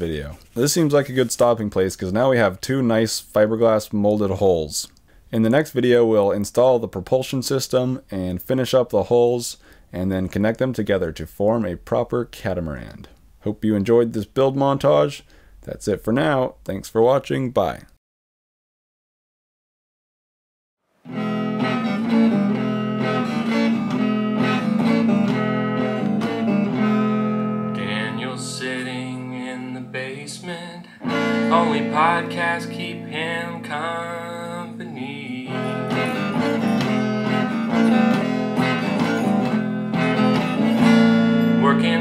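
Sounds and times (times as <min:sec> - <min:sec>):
pitch-bending guitar melody: 0:21.0 - 0:42.0
electric guitar strumming chords: 0:21.1 - 0:42.0.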